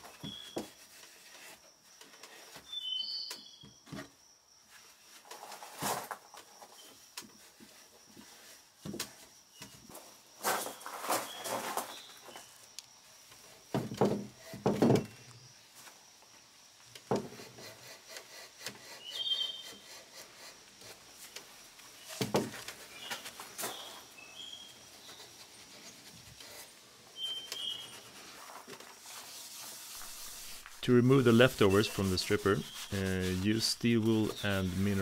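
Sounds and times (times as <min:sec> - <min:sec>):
steel wool scrubbing wood: 0:22.8 - 0:35.0.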